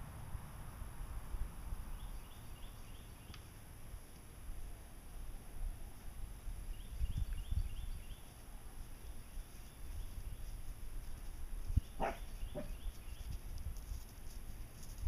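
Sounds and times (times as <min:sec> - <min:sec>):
bird chirping: 0:01.9 - 0:03.5, 0:06.7 - 0:08.4, 0:11.6 - 0:13.4.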